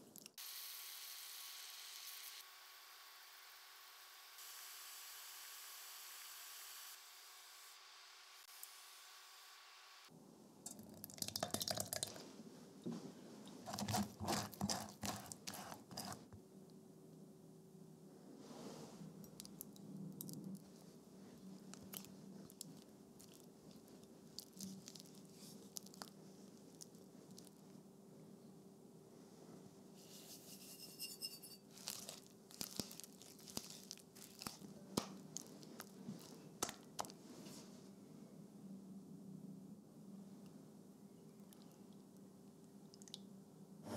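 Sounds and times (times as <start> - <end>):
sugar trickling into bowl: 10.7 - 12.2
spatula scraping through metal sieve: 13.7 - 16.3, 30.0 - 32.2
faint hiss of sauce on hob: 18.4 - 19.1.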